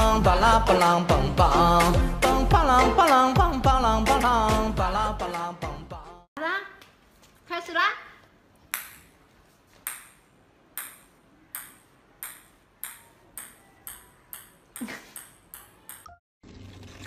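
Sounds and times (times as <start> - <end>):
ping-pong ball bouncing on tiles: 8.7 - 9.1, 9.8 - 16.2.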